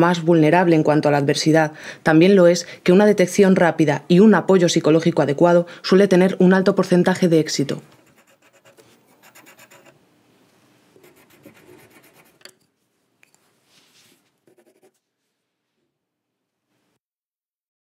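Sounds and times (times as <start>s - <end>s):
pencil scratching on paper: 7.9s - 10.0s, 11.0s - 12.5s, 14.4s - 15.0s.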